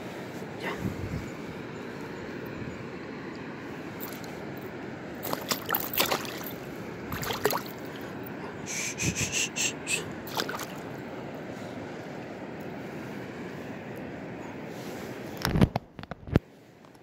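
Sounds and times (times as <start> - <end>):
river rushing: 1.5 - 15.3
water splashing from thrashing fish: 5.2 - 8.1, 10.2 - 10.8.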